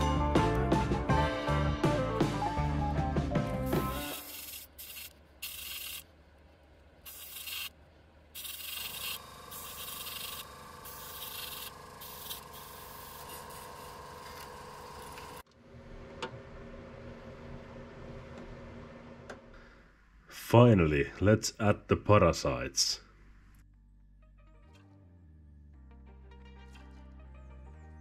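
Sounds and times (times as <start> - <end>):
airbrush hissing: 3.7 - 6.0, 7.1 - 7.7, 8.4 - 15.4
faint hum: 5.1 - 24.0.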